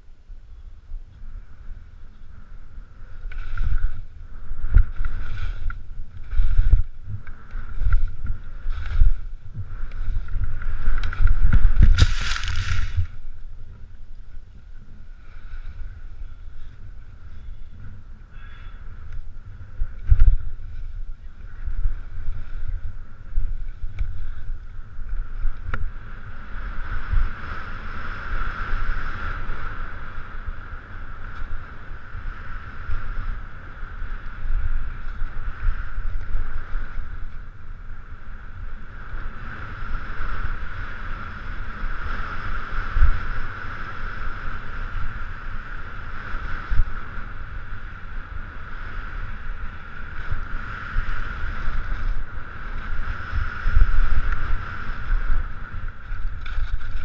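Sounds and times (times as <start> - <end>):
wind buffeting microphone: 0.0 - 57.0
skis scraping over snow: 2.8 - 17.2, 39.1 - 57.0.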